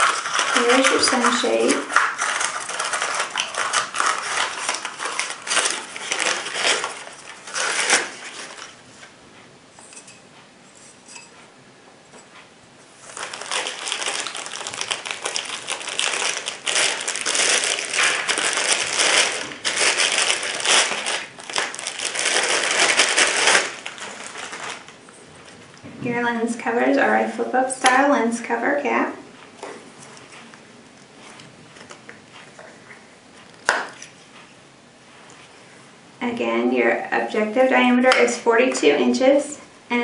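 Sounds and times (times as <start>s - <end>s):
plastic bag crinkling: 0.0s - 8.8s, 13.0s - 25.6s
paper wrapping crinkling: 0.0s - 9.1s, 13.0s - 25.6s.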